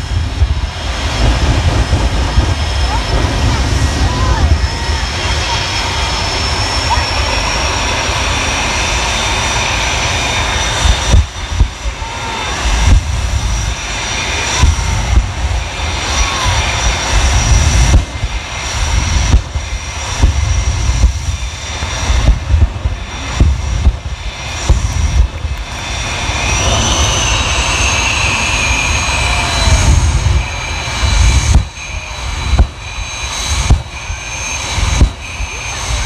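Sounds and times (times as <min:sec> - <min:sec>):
jet engine whine and roar: 0:00.0 - 0:36.0.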